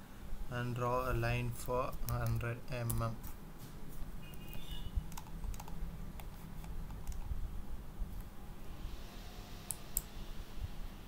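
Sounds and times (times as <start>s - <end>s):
low steady hum: 0.0s - 11.0s
keyboard keys clicking: 4.4s - 7.3s.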